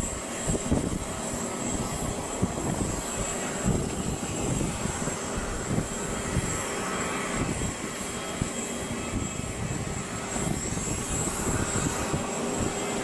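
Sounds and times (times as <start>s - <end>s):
jet aircraft whine and rumble: 0.0s - 13.0s.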